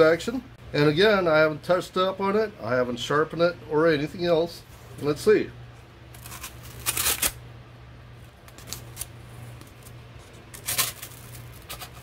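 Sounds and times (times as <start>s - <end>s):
knife slicing paper: 6.2s - 7.4s.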